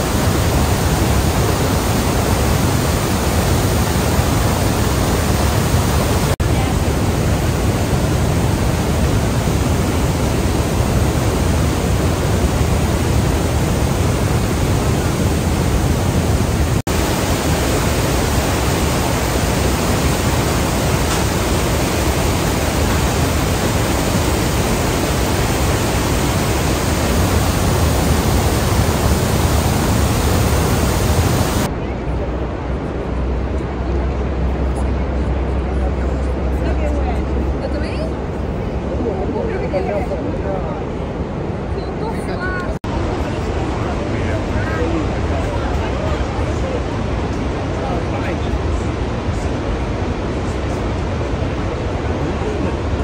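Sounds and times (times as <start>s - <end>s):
waterfall rushing: 0.0s - 31.7s, 42.9s - 53.0s.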